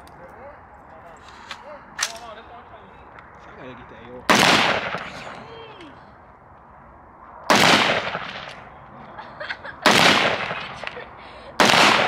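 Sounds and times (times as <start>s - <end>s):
gunshots with long echo: 4.3s - 5.4s, 7.4s - 8.8s, 9.8s - 11.0s, 11.6s - 12.0s.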